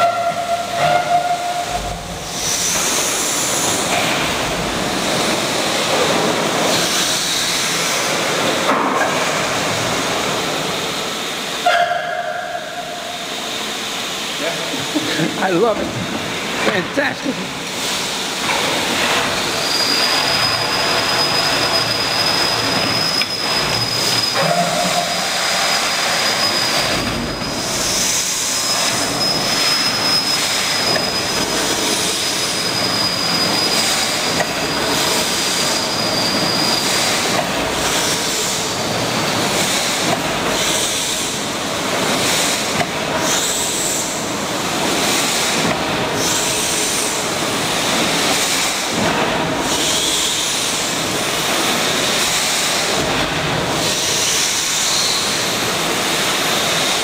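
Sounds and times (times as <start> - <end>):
steam hissing: 0.0 - 57.0
thin high whistle: 19.6 - 27.6.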